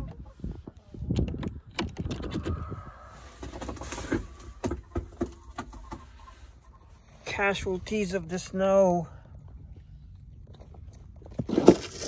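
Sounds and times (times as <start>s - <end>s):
low rumble: 2.0s - 3.6s.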